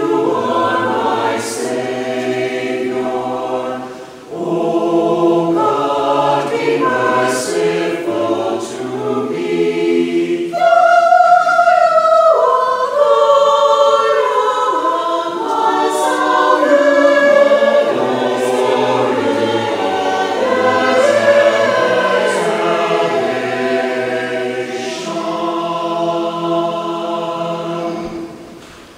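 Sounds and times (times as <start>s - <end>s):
choir singing a hymn: 0.0s - 28.9s.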